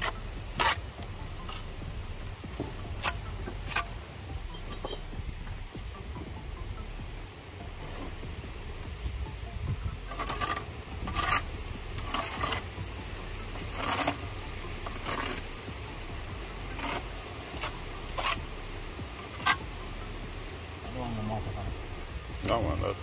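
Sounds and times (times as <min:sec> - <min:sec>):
trowel scraping and tapping bricks: 0:00.0 - 0:01.8, 0:02.5 - 0:05.1, 0:10.1 - 0:12.8, 0:13.6 - 0:14.2, 0:14.8 - 0:15.5, 0:16.7 - 0:18.4, 0:19.2 - 0:19.6.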